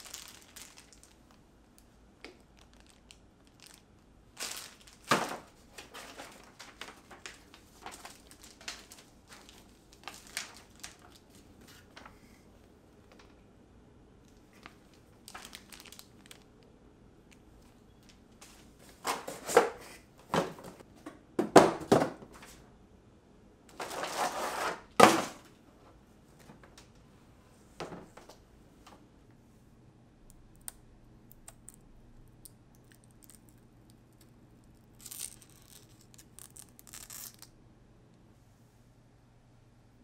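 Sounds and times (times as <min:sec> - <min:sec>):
packing material rustling: 0:00.0 - 0:01.4, 0:02.2 - 0:12.2, 0:14.4 - 0:16.6, 0:23.7 - 0:25.4, 0:34.8 - 0:37.5.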